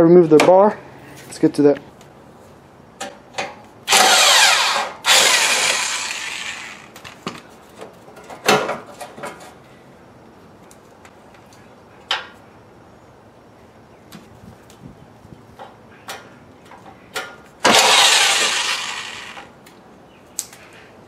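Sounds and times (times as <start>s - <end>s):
corded power tool running: 3.9s - 7.3s, 17.7s - 19.5s.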